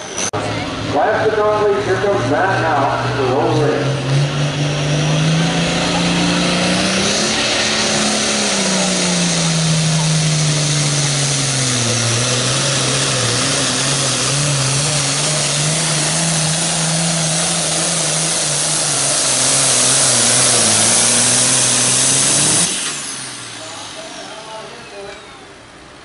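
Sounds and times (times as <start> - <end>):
tractor diesel engine under load: 0.0 - 26.0.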